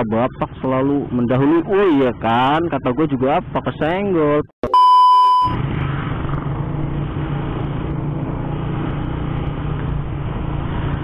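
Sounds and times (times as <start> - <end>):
road noise: 0.0 - 11.0
beep tone: 4.6 - 5.6
motorcycle engine hum: 5.4 - 11.0.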